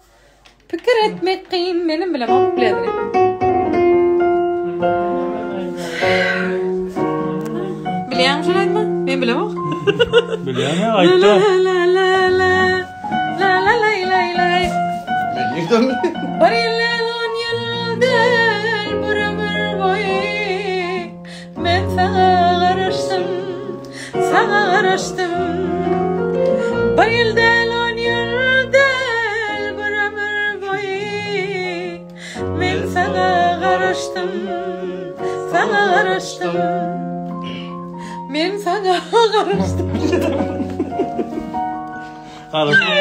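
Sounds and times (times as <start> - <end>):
woman singing: 0.7 - 3.0, 7.5 - 9.6, 10.6 - 15.0, 16.3 - 37.2, 38.2 - 40.4
keyboard chords and bass: 2.4 - 11.4, 15.0 - 17.0, 39.6 - 43.0.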